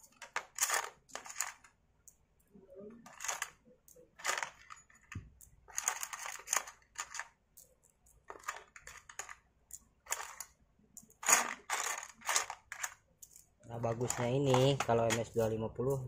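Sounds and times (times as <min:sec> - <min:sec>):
metal parts clinking in plastic tub: 0:00.0 - 0:01.7, 0:03.0 - 0:03.6, 0:04.2 - 0:07.4, 0:08.1 - 0:15.4.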